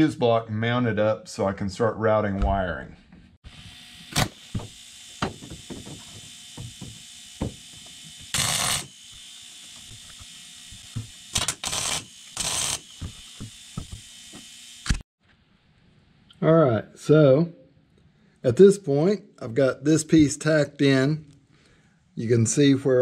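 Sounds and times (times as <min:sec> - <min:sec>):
arc welder hiss: 0:03.6 - 0:15.0.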